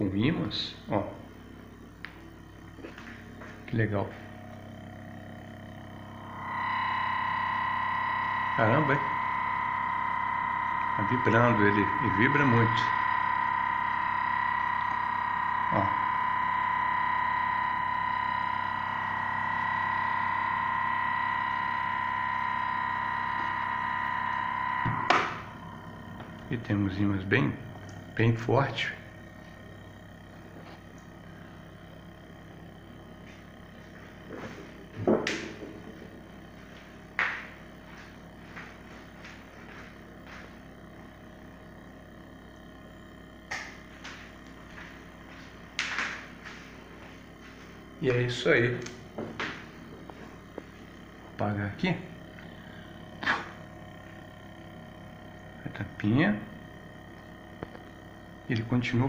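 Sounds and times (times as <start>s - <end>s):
engine high-pitched resonant tone: 3.8s - 42.2s.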